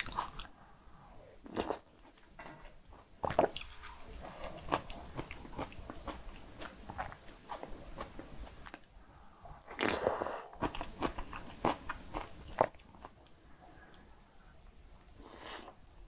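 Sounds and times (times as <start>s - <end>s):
wet chewing with crisp crackles: 0.0s - 0.6s, 3.2s - 9.0s, 9.6s - 14.1s.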